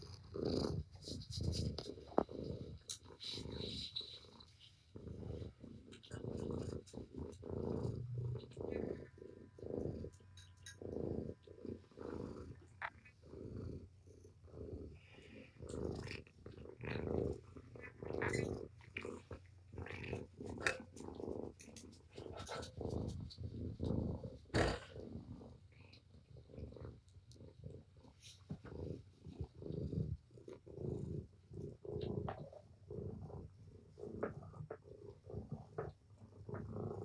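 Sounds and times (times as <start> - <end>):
cat purring: 0.0 - 37.0.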